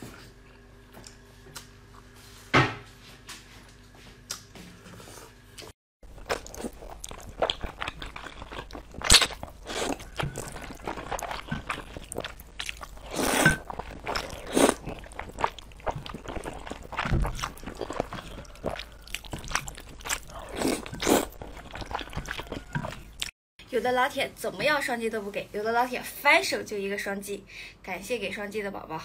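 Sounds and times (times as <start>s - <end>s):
noodles slurped: 6.2s - 23.3s
wet chewing smacks: 6.2s - 23.3s.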